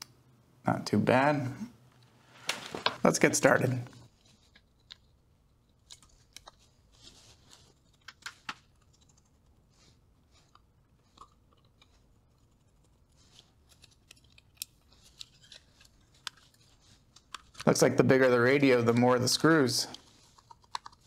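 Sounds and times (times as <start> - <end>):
fingers handling plastic case: 4.2 - 6.8, 7.5 - 9.6, 10.4 - 17.8, 19.9 - 21.0
screwdriver clicks and scrapes: 20.0 - 21.0.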